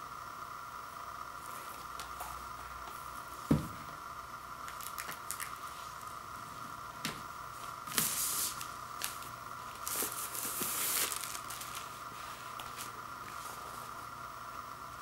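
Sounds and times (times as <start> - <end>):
plastic sleeve rustling: 7.9 - 13.9.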